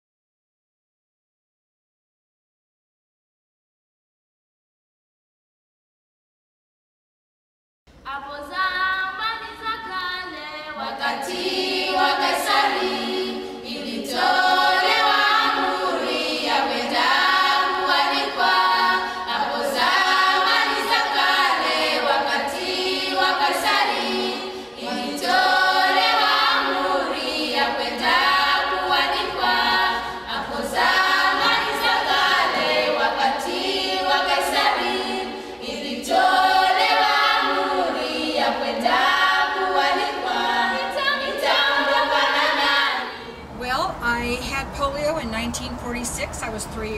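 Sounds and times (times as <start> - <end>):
choir singing a cappella: 8.1 - 43.6.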